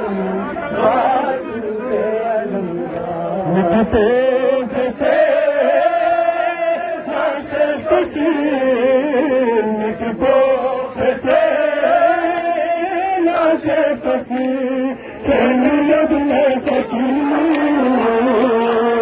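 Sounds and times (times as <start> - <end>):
men chanting together: 0.0 - 19.0.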